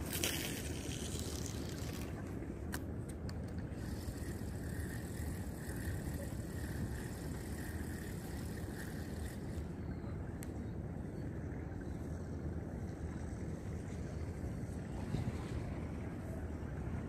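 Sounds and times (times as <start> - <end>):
faint click: 10.4 - 10.6.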